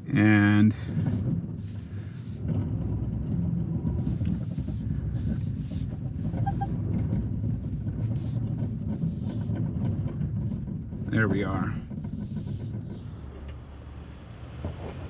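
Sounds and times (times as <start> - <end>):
engine running under load: 0.0 - 15.0
short scraping sounds: 4.1 - 6.8.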